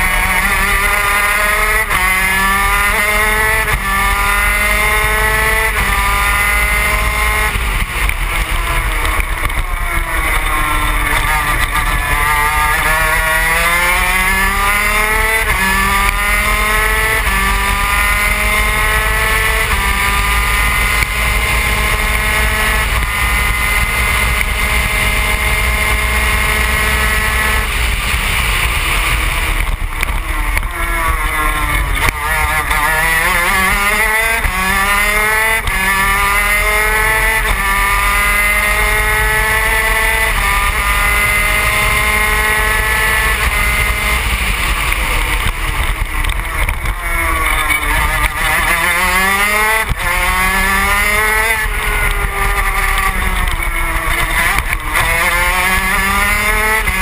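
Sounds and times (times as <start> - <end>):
two-stroke racing engine: 0.0 - 57.0.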